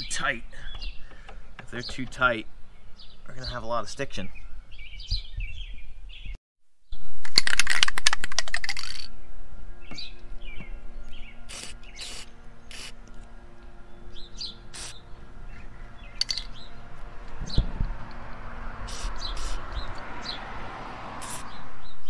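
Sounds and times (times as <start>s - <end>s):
birds chirping: 0.0s - 6.4s, 9.1s - 22.0s
aerosol can spraying: 11.5s - 13.0s, 14.7s - 15.0s, 18.8s - 19.7s, 21.2s - 21.5s.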